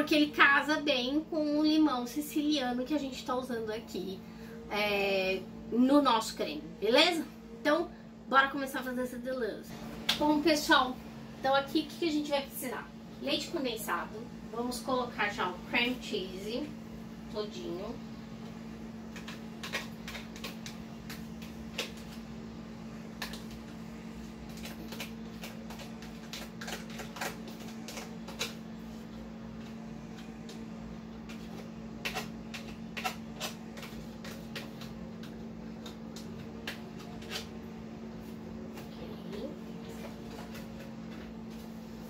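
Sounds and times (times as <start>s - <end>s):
steady low hum: 0.0s - 42.0s
utensils clicking in mixing bowl: 19.0s - 22.2s, 24.4s - 28.6s, 31.2s - 37.5s.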